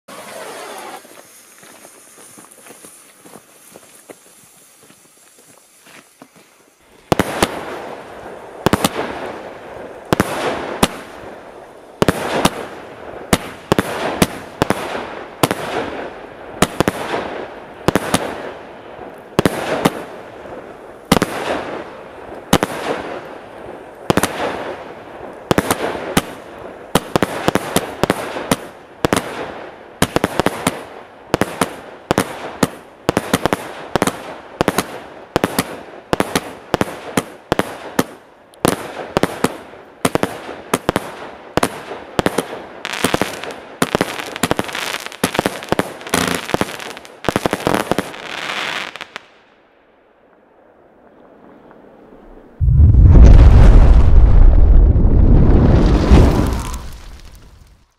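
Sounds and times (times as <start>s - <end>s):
fireworks bursting: 0.1s - 49.4s, 51.1s - 57.9s
firework shots firing: 7.1s - 8.0s, 8.6s - 9.4s, 12.0s - 17.3s, 27.0s - 49.2s.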